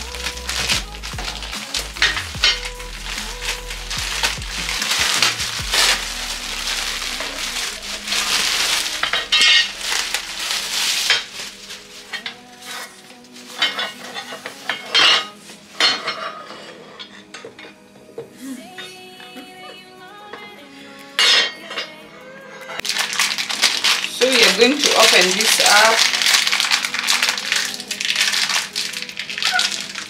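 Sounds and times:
plastic bags rustling: 0:00.0 - 0:17.9, 0:22.8 - 0:30.0
metal parts clinking: 0:08.2 - 0:11.5, 0:13.5 - 0:17.7.

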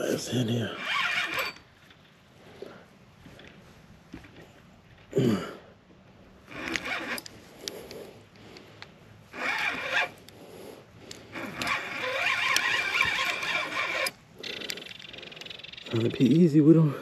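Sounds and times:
fishing reel buzzing: 0:00.7 - 0:01.7, 0:06.5 - 0:07.3, 0:09.3 - 0:10.2, 0:11.3 - 0:16.3.

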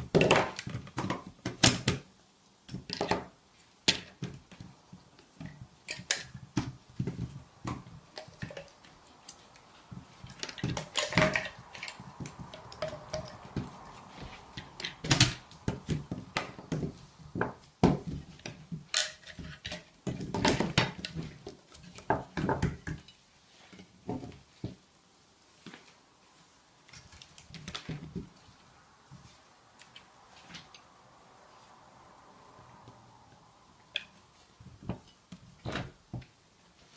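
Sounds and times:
plastic parts clicking and knocking: 0:00.0 - 0:02.1, 0:02.7 - 0:23.2.

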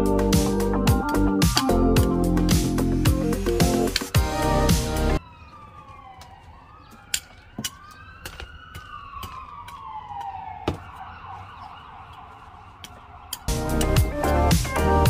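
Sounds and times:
siren wailing: 0:04.2 - 0:15.0.

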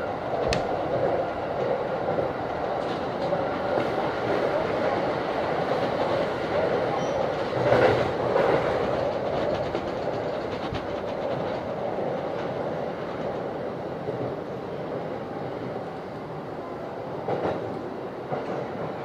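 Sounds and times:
train wheels rumbling on track: 0:00.0 - 0:19.0
faint rail clicks: 0:00.4 - 0:01.7, 0:06.9 - 0:13.5.

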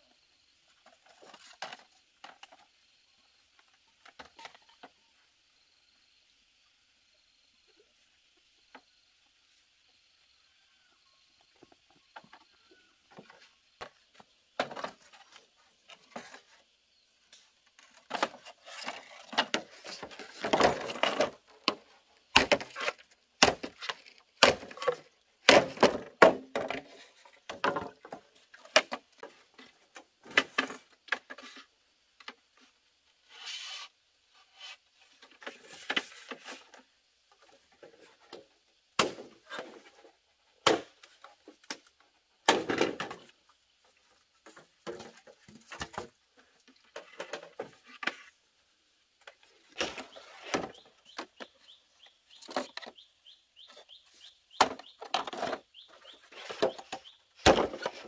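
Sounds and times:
bamboo poles knocking together: 0:13.1 - 0:16.5, 0:17.7 - 0:31.6, 0:37.4 - 0:43.3, 0:44.4 - 0:46.1, 0:54.6 - 0:58.0
machete chopping bamboo: 0:22.4 - 0:23.7, 0:24.4 - 0:26.5, 0:39.0 - 0:39.4, 0:40.6 - 0:40.9.

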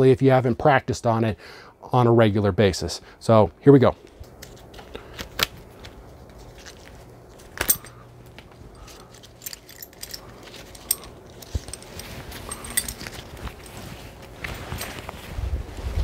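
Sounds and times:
strap rustling: 0:04.0 - 0:16.0
metal clicks and clinks: 0:07.6 - 0:08.0, 0:08.7 - 0:13.7.

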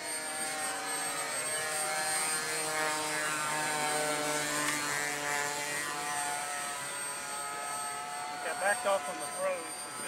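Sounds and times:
model airplane motor whining: 0:00.0 - 0:10.0.

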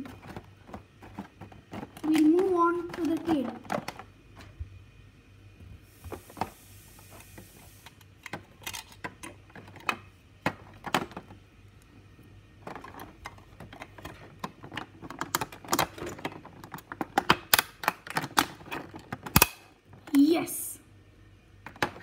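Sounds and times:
plastic parts clicking and knocking: 0:00.0 - 0:04.6, 0:08.0 - 0:11.4, 0:12.6 - 0:20.2, 0:21.6 - 0:22.0.

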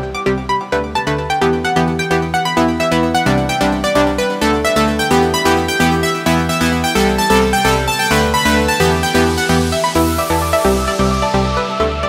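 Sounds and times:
electronic dance music: 0:00.1 - 0:12.0.

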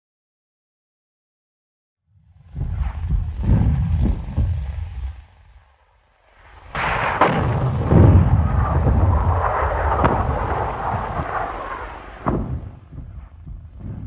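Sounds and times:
continuous rumbling roar: 0:02.2 - 0:14.0
sharp explosion bangs: 0:06.7 - 0:14.0.

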